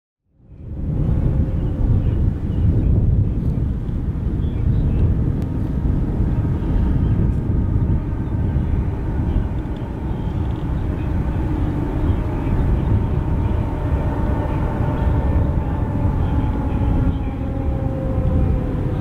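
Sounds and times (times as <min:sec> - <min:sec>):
distant vehicles rumbling: 0:00.4 - 0:19.0
faint steady tones: 0:05.4 - 0:19.0.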